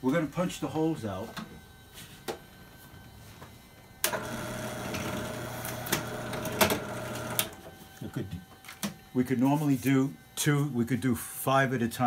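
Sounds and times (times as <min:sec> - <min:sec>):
drill press running: 0:04.0 - 0:07.7.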